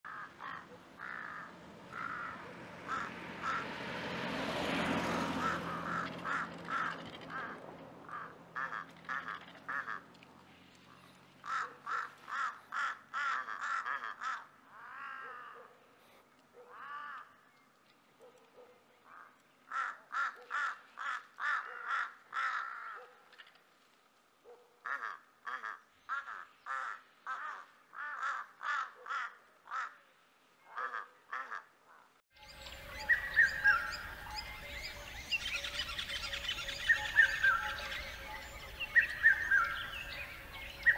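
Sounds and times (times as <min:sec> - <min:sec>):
birds calling harshly: 0:00.0 - 0:15.6, 0:19.0 - 0:23.5, 0:32.4 - 0:40.9.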